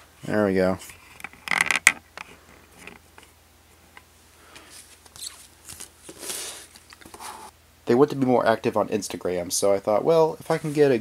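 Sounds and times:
rustling: 0:04.4 - 0:07.5
paper pamphlet rustling: 0:04.6 - 0:07.2.

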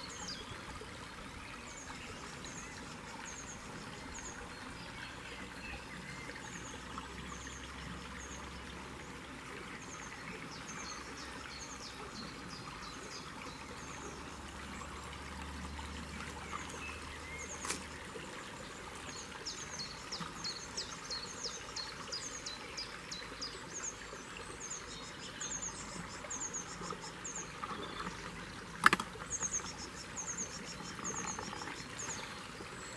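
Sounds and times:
stream trickling over stones: 0:00.0 - 0:32.9
birds chirping: 0:15.6 - 0:32.9.

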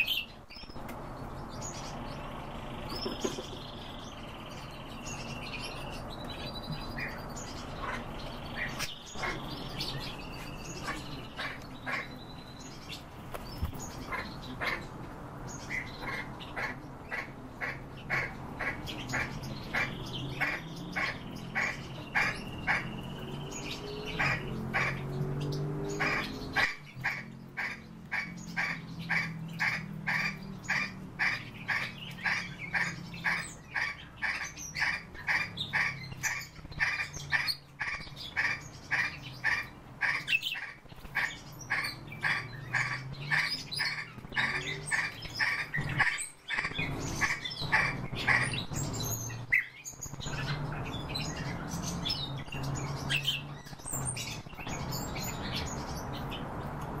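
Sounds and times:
starling calling: 0:02.8 - 0:56.6.

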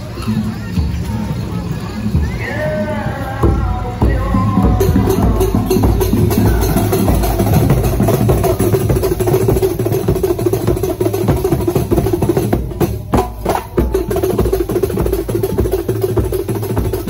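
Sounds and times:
frame drums beaten: 0:03.4 - 0:17.0.

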